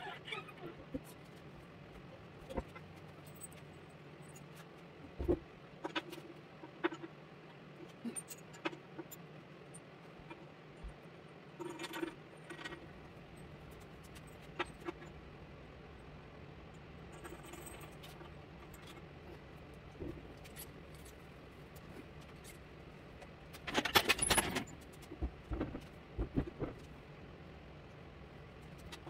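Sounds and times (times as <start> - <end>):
steady low hum: 0.0 - 29.0
small metal parts clinking: 23.5 - 25.1.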